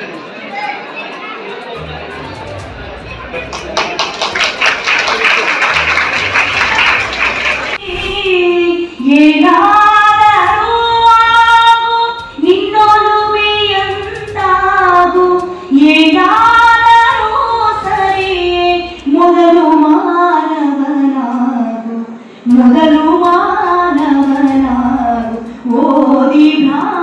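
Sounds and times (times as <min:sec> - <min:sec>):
woman singing into a microphone: 0:07.8 - 0:27.0.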